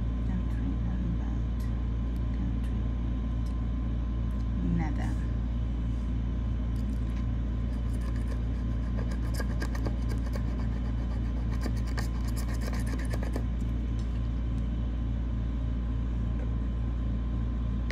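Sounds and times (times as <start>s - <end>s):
steady low hum: 0.0s - 17.9s
metal tool scratching ticket: 7.7s - 13.6s.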